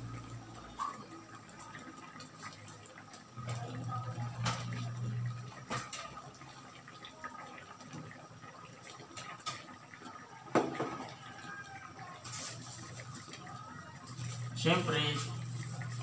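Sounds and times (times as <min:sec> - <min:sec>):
broth bubbling in a wok: 0:00.0 - 0:16.0.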